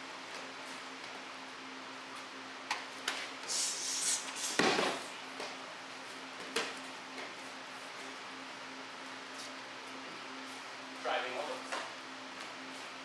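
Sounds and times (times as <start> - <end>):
steady low hum: 0.0 - 13.0
slaps on training mat: 4.6 - 5.0.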